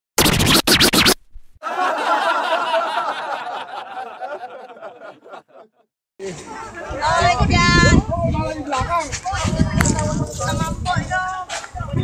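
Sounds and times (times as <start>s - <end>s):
warbling wavering sound: 0.2s - 1.4s
loud scratchy burst: 0.2s - 1.6s.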